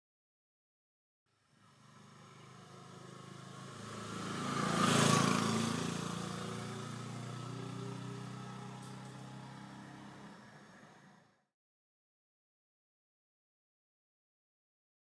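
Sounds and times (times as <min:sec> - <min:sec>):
vehicle engine hum passing: 0:01.4 - 0:11.5.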